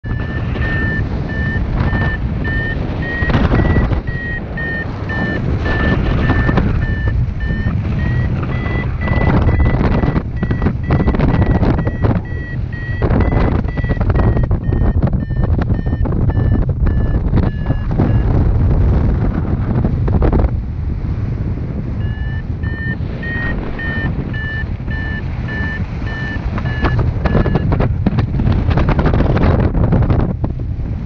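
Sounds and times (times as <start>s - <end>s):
variometer short beeps: 0.0s - 18.4s, 22.0s - 27.8s
wind rushing on microphone: 0.0s - 31.0s.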